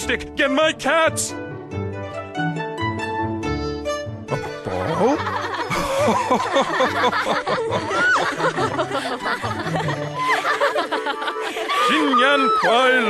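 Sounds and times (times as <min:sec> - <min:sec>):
background music: 0:00.0 - 0:13.0
people laughing: 0:04.3 - 0:13.0.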